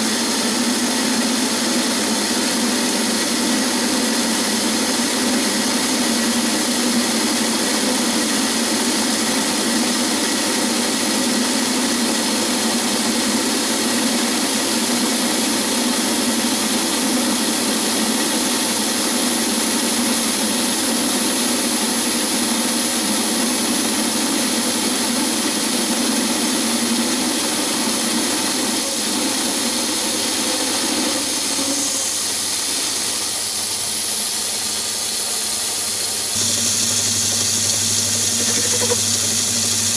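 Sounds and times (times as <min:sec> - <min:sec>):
lathe cutting metal: 0:36.4 - 0:39.9.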